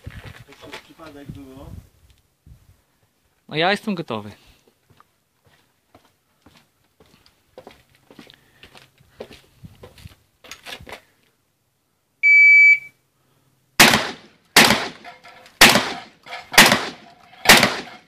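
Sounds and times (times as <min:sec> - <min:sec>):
electronic beep: 0:12.2 - 0:13.0
shotgun shots with echo: 0:13.8 - 0:18.0.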